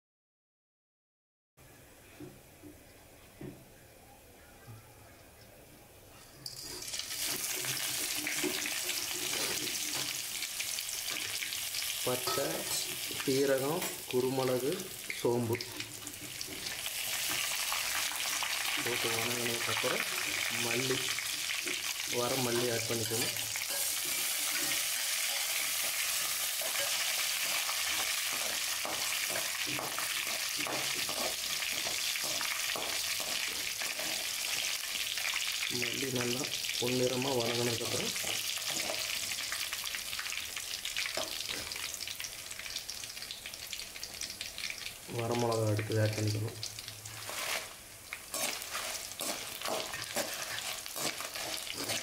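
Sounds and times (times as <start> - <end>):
metal spatula scraping a pan: 6.2 - 10.2, 21.2 - 35.0, 47.1 - 52.0
spices sizzling in hot oil: 6.4 - 52.0.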